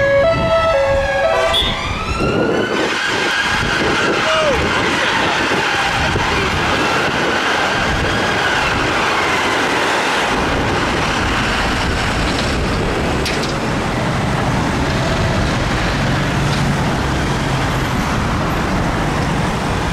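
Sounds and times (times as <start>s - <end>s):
siren wailing: 0.0s - 10.2s
city street traffic: 0.0s - 19.9s.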